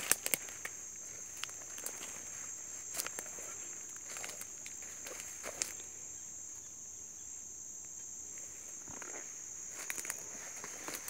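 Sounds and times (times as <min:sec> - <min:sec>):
footsteps crunching on dry leaves: 0:00.0 - 0:05.8, 0:08.9 - 0:11.0.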